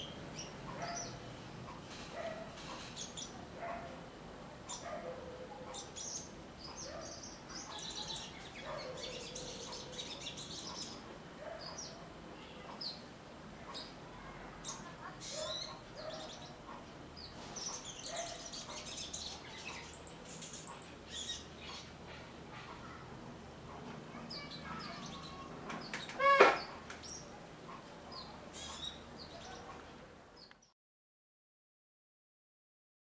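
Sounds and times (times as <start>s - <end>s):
small birds chirping: 0.0s - 30.7s
loud clear bird call: 24.2s - 27.3s.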